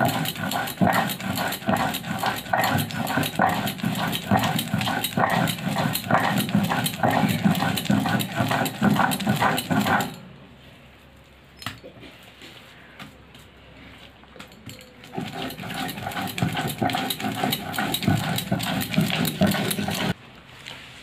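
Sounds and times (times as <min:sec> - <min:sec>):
stone roller grinding on slab: 0:00.0 - 0:10.2, 0:15.0 - 0:20.2.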